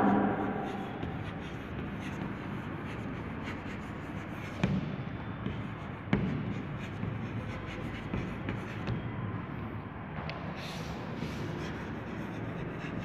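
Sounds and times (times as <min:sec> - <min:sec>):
chalk scratching on blackboard: 0:00.1 - 0:08.9, 0:10.6 - 0:13.0
sharp chalk taps: 0:00.3 - 0:09.1.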